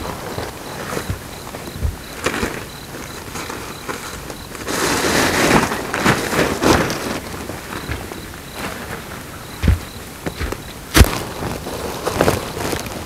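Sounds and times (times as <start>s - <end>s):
footsteps crunching through leaves: 0.0s - 13.0s.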